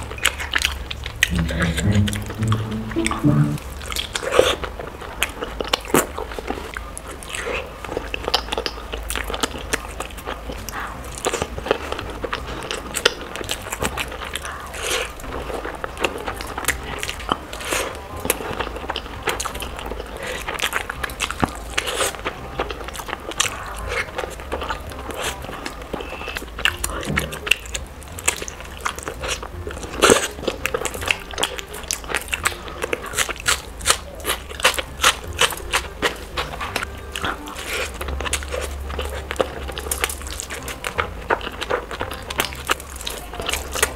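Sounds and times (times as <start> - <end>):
chewing and mouth smacks: 0.0 - 1.8, 3.9 - 43.9.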